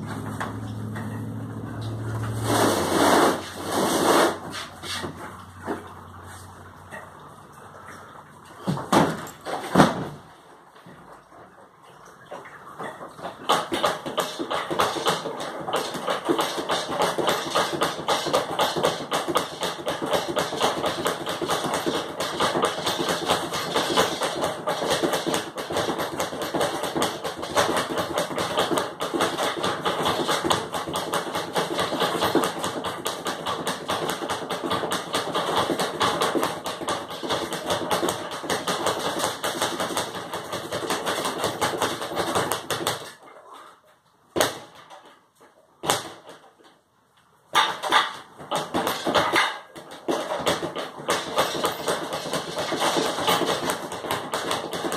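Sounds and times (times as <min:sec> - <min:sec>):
speed bag rattling: 0:13.5 - 0:43.1, 0:47.6 - 0:54.9.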